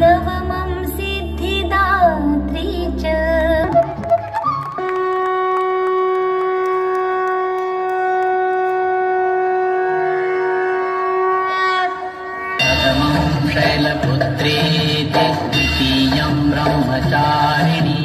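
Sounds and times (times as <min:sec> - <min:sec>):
devotional song with bass backing: 0:00.0 - 0:04.6, 0:12.4 - 0:18.0
conch shell blown: 0:04.6 - 0:13.4.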